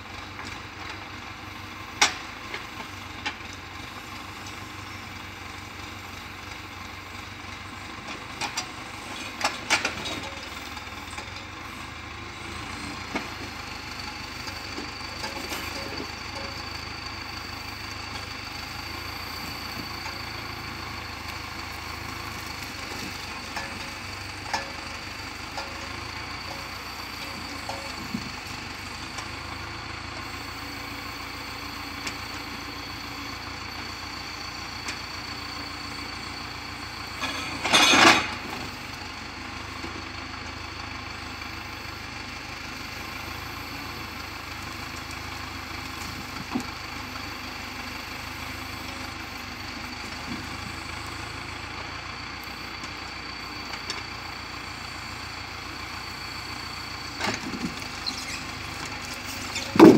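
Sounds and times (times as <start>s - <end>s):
tractor engine running: 0.0s - 59.9s
logs knocking together: 59.6s - 59.9s.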